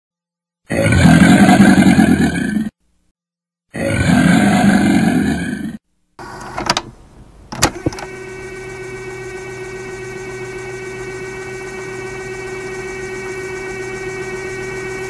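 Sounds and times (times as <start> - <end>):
deep creature roar: 0.7 - 2.8, 3.7 - 5.8
electric hum with held tones: 6.2 - 15.0.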